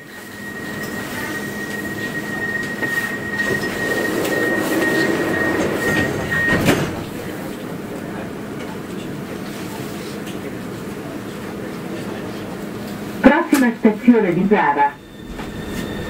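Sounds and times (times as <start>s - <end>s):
high warning tone: 0.0s - 7.5s, 13.3s - 16.0s
sliding doors shutting: 2.6s - 7.6s
doors closing knock: 5.5s - 7.2s.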